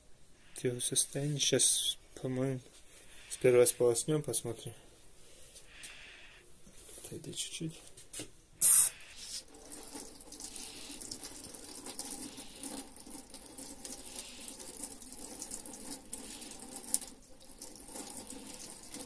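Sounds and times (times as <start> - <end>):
tap water splashing on metal: 9.4 - 19.0.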